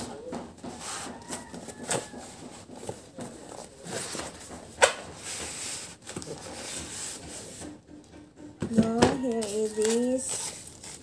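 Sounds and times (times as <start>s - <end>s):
cardboard rubbing and scraping: 0.6s - 7.6s, 9.3s - 11.0s.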